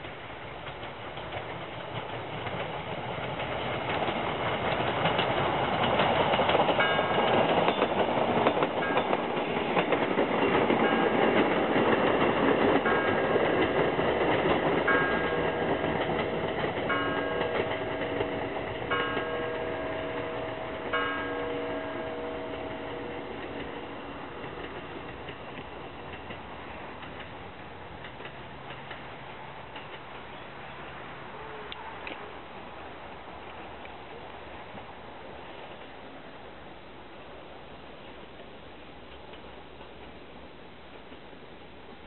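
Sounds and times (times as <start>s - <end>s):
diesel railcar passing: 0.0s - 42.0s
church bell striking: 14.9s - 23.5s.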